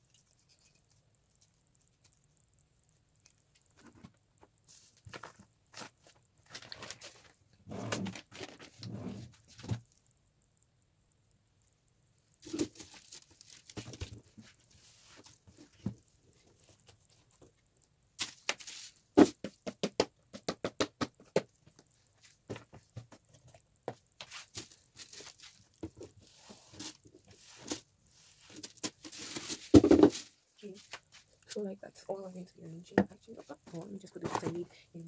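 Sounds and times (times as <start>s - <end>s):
small items knocking on desk: 18.2s - 21.9s, 28.6s - 30.3s.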